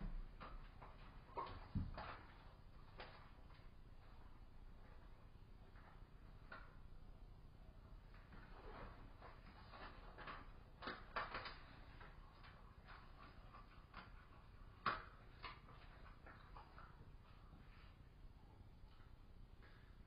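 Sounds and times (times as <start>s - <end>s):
faint clicks and knocks: 8.0s - 18.0s.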